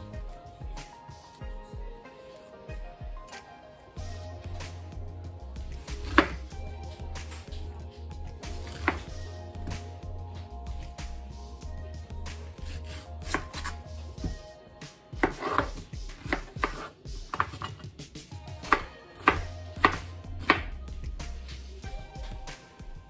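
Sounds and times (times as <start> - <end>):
knife chopping on cutting board: 5.8 - 6.4, 8.4 - 9.1, 12.6 - 14.4, 15.2 - 17.8, 18.6 - 20.7.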